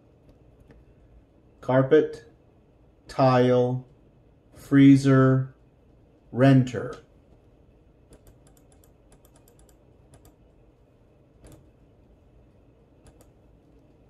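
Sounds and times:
computer mouse clicks: 0:08.1 - 0:10.4, 0:11.4 - 0:11.7, 0:13.0 - 0:13.4.

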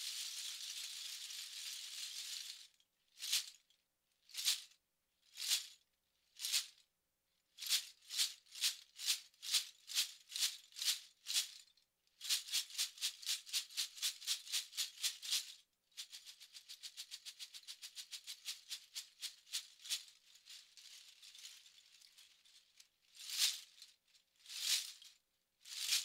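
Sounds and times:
bottle cap rattle shaking: 0:00.0 - 0:02.7.

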